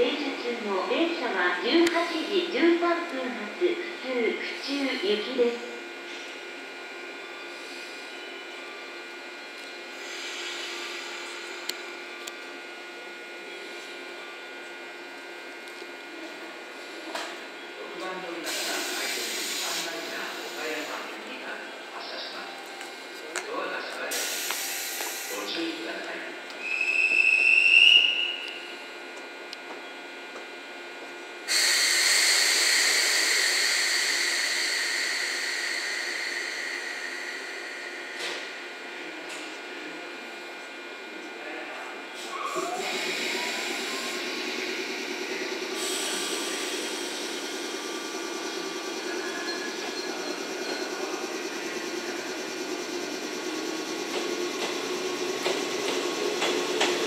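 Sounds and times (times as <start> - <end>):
electric train hum: 0.0 - 57.0
air hiss: 18.5 - 21.0, 31.5 - 38.5, 42.2 - 47.9.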